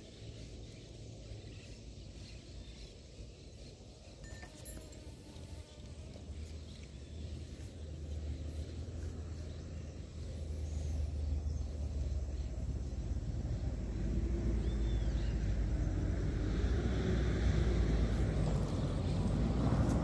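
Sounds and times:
motor drone: 0:04.1 - 0:20.0.

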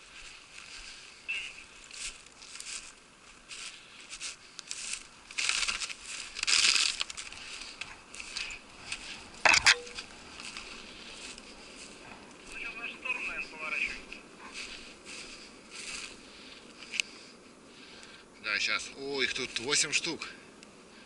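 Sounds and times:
clothing brushing through twigs: 0:00.0 - 0:12.7, 0:14.4 - 0:17.0
footsteps crunching in snow: 0:00.0 - 0:17.3.

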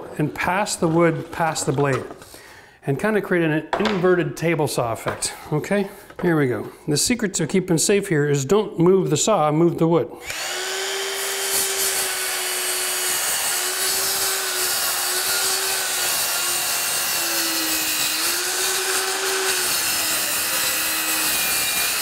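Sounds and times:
saw cutting wood: 0:10.2 - 0:22.0.

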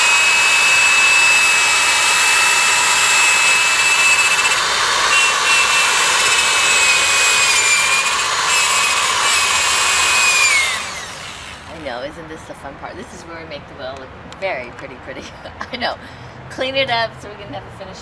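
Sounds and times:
electric drill whining: 0:00.0 - 0:11.9.

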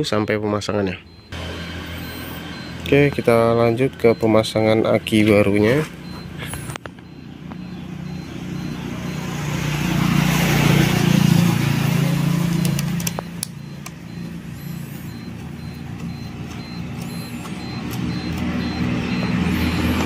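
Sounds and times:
low traffic engine hum: 0:00.0 - 0:20.0
vehicle passing: 0:01.1 - 0:20.0.

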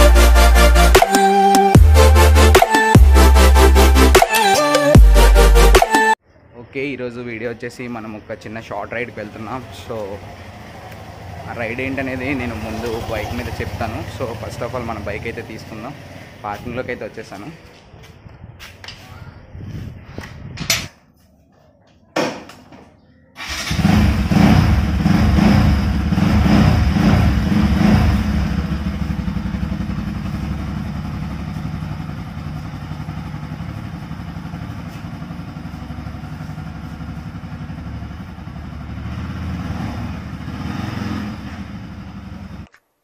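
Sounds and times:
motorcycle engine running: 0:09.6 - 0:16.8, 0:23.4 - 0:42.7.

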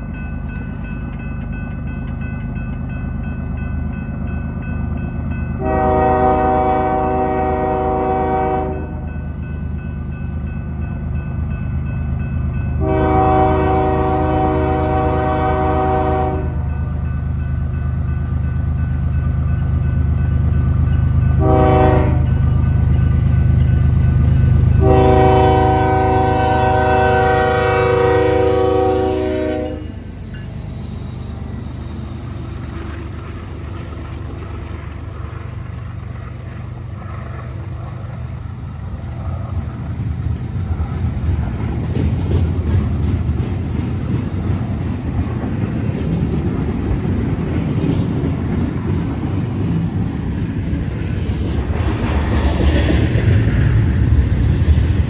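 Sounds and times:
train rumbling past: 0:00.0 - 0:55.0
locomotive horn blasts: 0:05.6 - 0:09.1, 0:12.8 - 0:16.8, 0:21.4 - 0:22.4, 0:24.7 - 0:30.0.

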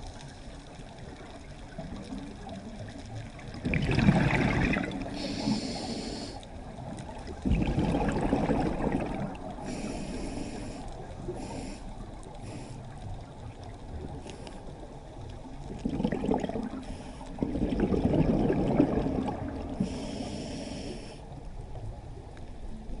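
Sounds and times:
underwater rumble: 0:00.0 - 0:23.0
burbling exhaled bubbles: 0:01.6 - 0:05.7, 0:06.7 - 0:09.9, 0:15.4 - 0:20.0
regulator hissing inhalations: 0:05.1 - 0:06.5, 0:09.6 - 0:13.0, 0:19.8 - 0:21.3.

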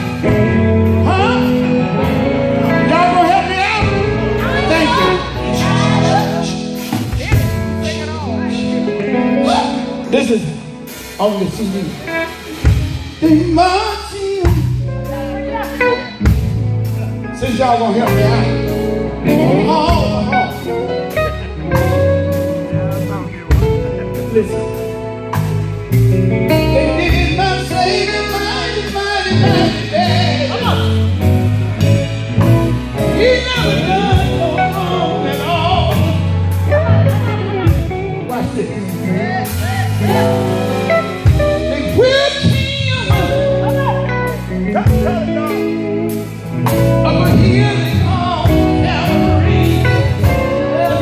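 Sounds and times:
gospel band playing: 0:00.0 - 0:51.0
man singing into microphone: 0:00.2 - 0:06.8, 0:13.1 - 0:15.0, 0:17.4 - 0:21.2, 0:26.6 - 0:32.0, 0:33.0 - 0:51.0.

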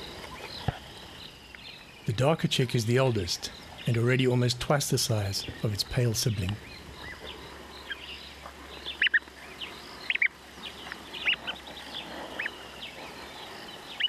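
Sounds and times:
bird chick peeping: 0:06.4 - 0:14.0.

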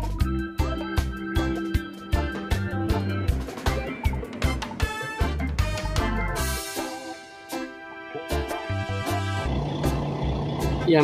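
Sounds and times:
bass line: 0:00.0 - 0:06.7, 0:08.3 - 0:11.0.

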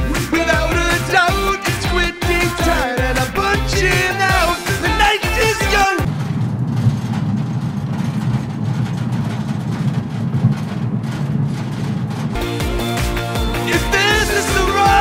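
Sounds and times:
loud music with singing: 0:00.0 - 0:06.1, 0:12.4 - 0:15.0
van road and engine rumble: 0:00.0 - 0:15.0.

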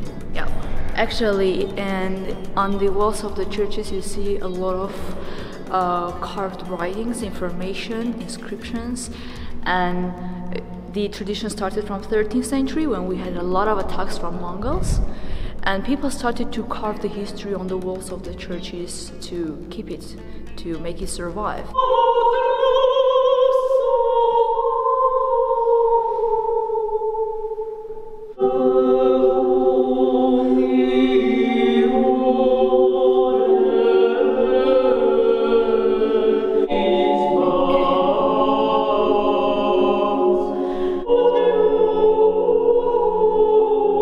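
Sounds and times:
women's choir singing chant: 0:21.7 - 0:44.0.

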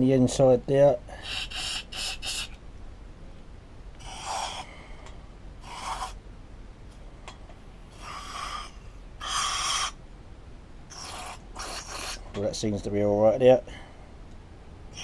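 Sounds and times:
aerosol spray hissing: 0:01.2 - 0:02.6.

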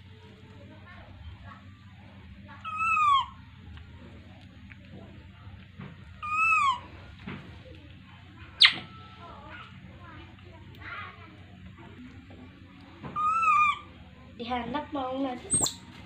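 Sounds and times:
baby monkey high cries: 0:02.6 - 0:03.5, 0:06.2 - 0:07.0, 0:08.6 - 0:09.0, 0:13.1 - 0:14.0, 0:15.5 - 0:15.8.

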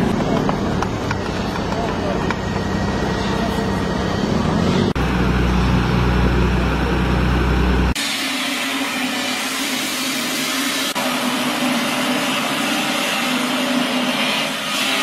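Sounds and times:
heavy construction machinery engines: 0:00.0 - 0:15.0.

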